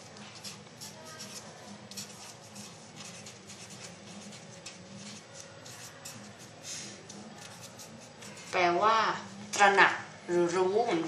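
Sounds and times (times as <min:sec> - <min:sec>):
steady low hum: 0:00.0 - 0:11.0
marker scratching on paper: 0:00.1 - 0:08.7.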